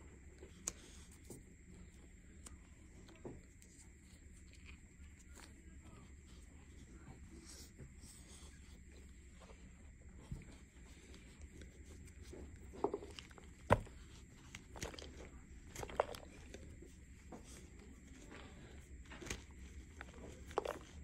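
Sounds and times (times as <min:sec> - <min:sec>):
hands crushing chalk paste: 0:02.0 - 0:21.0.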